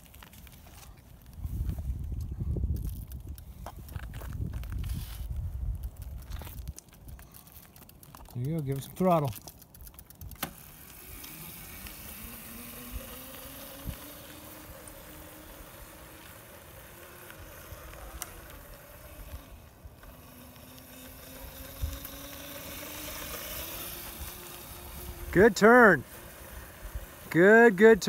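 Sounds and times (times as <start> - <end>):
electric dirt bike motor whining: 0.0 - 28.0.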